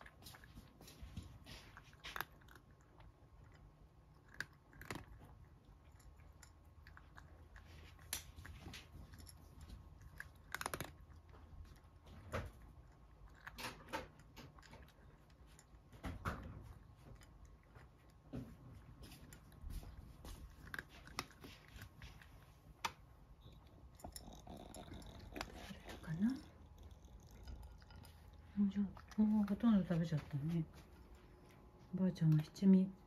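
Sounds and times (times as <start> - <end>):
cat crunching dry kibble: 0.0 - 33.0.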